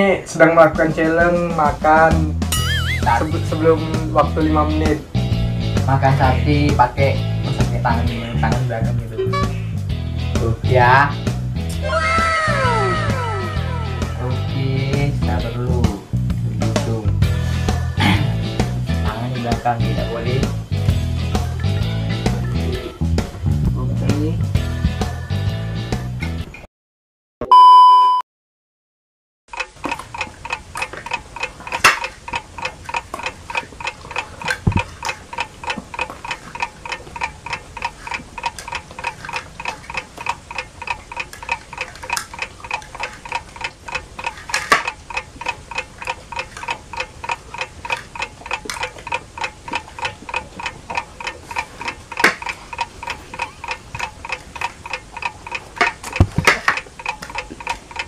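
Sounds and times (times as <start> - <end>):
clock ticking: 0.4 - 9.7, 29.5 - 58.0.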